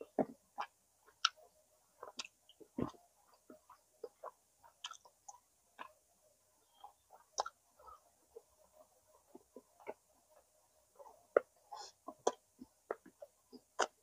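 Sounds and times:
person chewing food: 0:02.0 - 0:05.9, 0:06.7 - 0:08.5, 0:09.3 - 0:10.1, 0:11.0 - 0:14.0.

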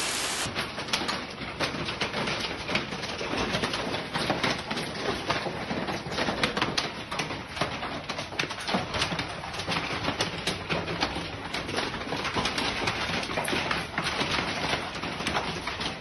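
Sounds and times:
hailstones clicking: 0:00.0 - 0:00.4.

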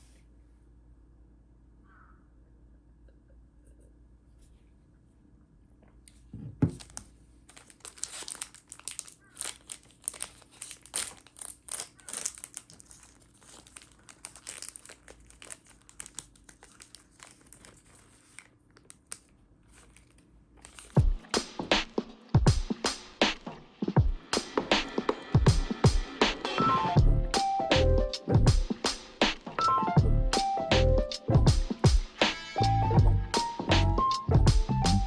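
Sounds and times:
plastic wrapper crinkling and tearing: 0:06.7 - 0:21.1.

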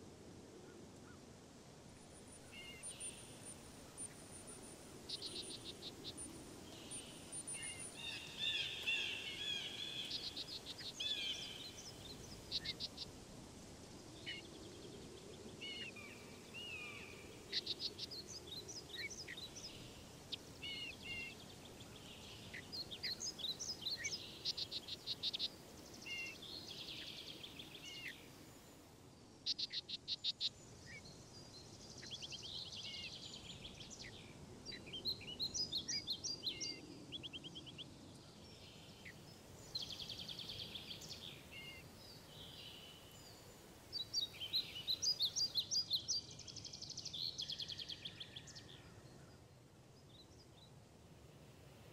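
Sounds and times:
birds chirping and trilling: 0:02.2 - 0:13.1.

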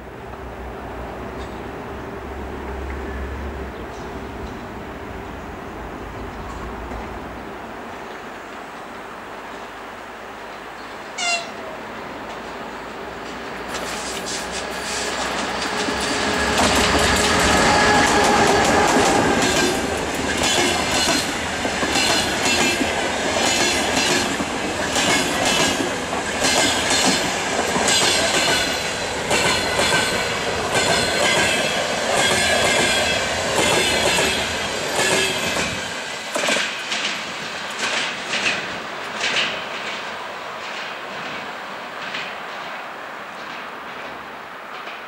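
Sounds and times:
electric locomotive passing: 0:00.0 - 0:45.0
wheels clicking over rail joints: 0:12.2 - 0:45.0.

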